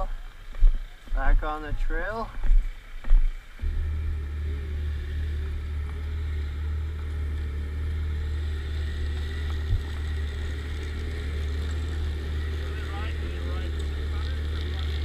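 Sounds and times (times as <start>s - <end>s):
snowmobile engine idling: 3.4s - 15.0s.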